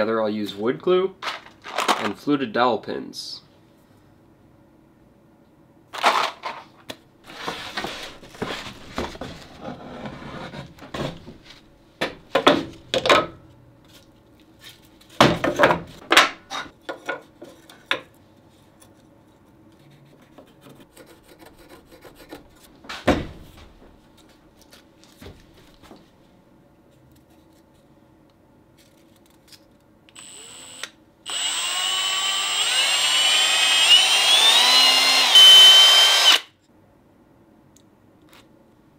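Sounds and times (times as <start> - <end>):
cordless drill whining: 30.2 - 36.5.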